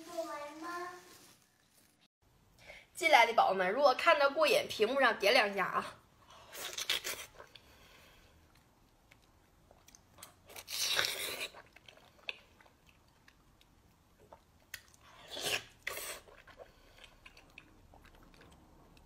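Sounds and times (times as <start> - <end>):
soft chewing and smacking: 6.7 - 10.6, 11.3 - 19.0.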